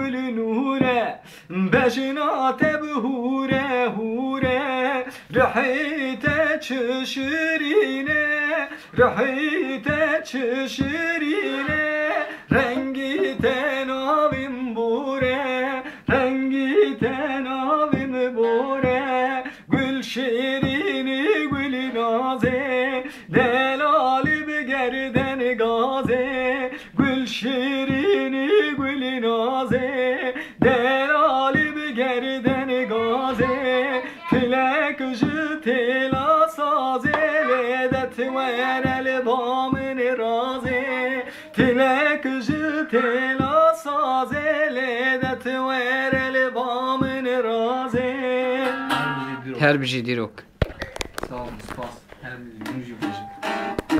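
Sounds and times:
man singing folk song: 0.0s - 49.8s
strummed lute strings: 48.3s - 49.6s, 52.6s - 53.9s.

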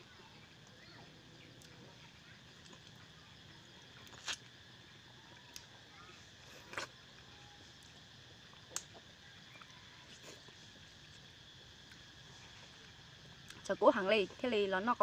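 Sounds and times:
faint steady background: 0.0s - 15.0s
wet bites and slurps: 4.0s - 4.5s, 6.5s - 7.2s, 7.8s - 11.2s.

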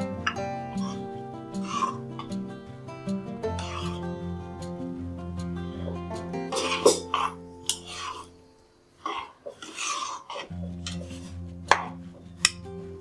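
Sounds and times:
background music: 0.0s - 13.0s
spoon scraping and clinking pan: 3.6s - 4.0s, 6.5s - 8.3s, 9.1s - 12.6s.

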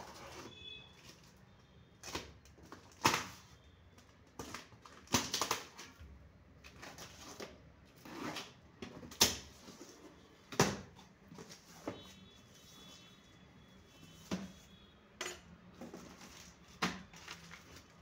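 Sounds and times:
plastic film crinkling and ripping: 4.3s - 6.0s, 15.9s - 18.0s.

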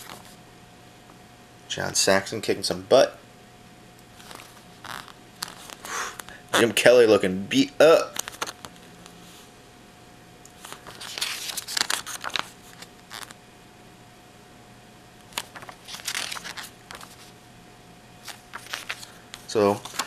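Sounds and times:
paper pages turning: 0.0s - 0.4s, 4.2s - 5.9s, 8.1s - 8.7s, 10.6s - 13.4s, 15.3s - 17.3s, 18.2s - 20.0s.

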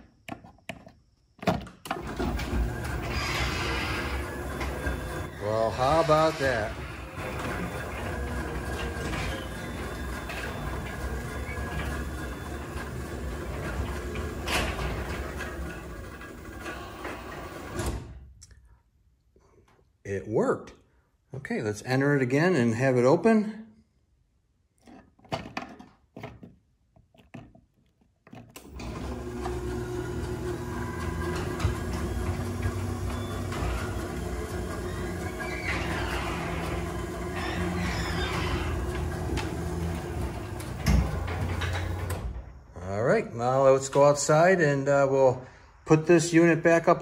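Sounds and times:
garage door opener running: 1.8s - 18.3s, 28.6s - 42.6s.

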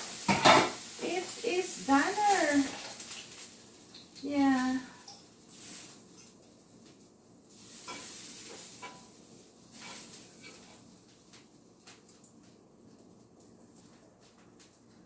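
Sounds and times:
steak sizzling in a frying pan: 0.0s - 12.6s
utensil scraping a pan: 7.5s - 10.9s.

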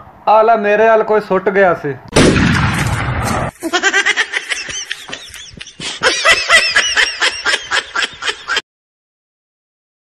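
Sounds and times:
high-pitched laughter: 3.6s - 8.6s.

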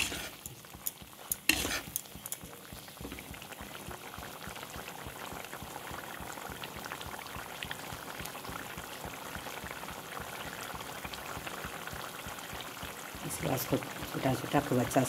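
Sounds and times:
gravy boiling in a pan: 0.0s - 15.0s.

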